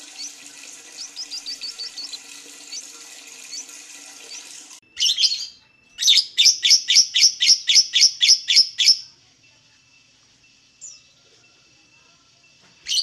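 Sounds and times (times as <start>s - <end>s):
lovebird shrill chirps: 4.3s - 9.0s.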